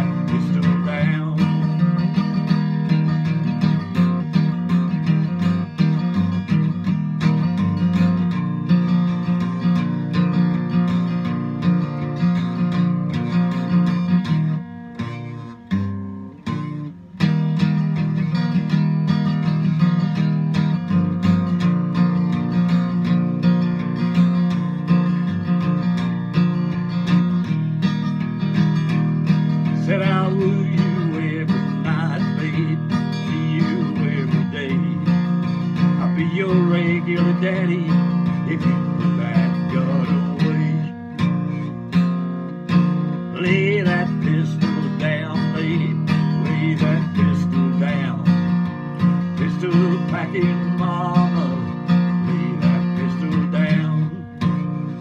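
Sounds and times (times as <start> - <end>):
man singing: 0.0 - 8.3, 28.6 - 42.1, 42.7 - 55.0
acoustic guitar strumming: 0.0 - 55.0.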